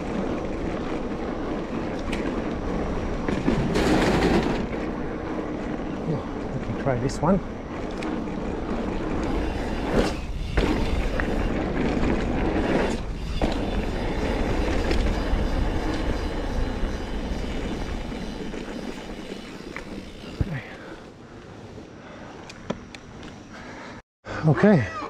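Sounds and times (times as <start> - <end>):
bike knocks and rattles: 0.0 - 5.6, 6.8 - 20.8
wind noise: 0.0 - 20.9
bike tyre rumble on dirt: 0.0 - 24.0.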